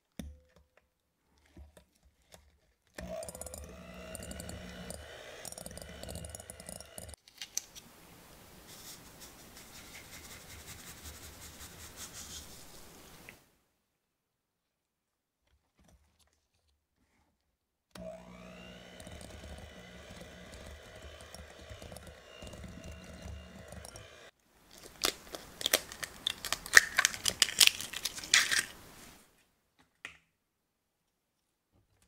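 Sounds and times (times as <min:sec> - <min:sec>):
electric hand mixer whirring: 0:03.0 - 0:07.2, 0:18.0 - 0:26.4
egg cracking into bowl: 0:24.7 - 0:28.8.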